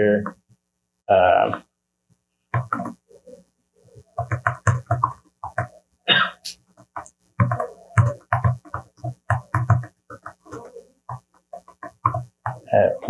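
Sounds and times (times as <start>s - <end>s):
man mumbling: 0.0s - 0.3s, 1.1s - 1.6s, 12.6s - 13.0s.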